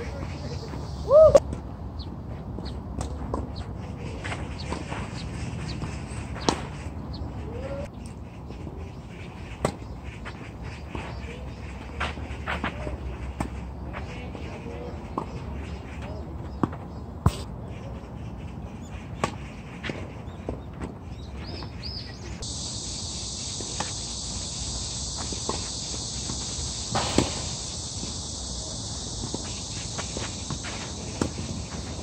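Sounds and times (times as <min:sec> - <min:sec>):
tennis balls struck by rackets: 0:02.6 - 0:07.2, 0:23.6 - 0:24.4, 0:25.1 - 0:32.0
high insect buzz: 0:22.4 - 0:32.0.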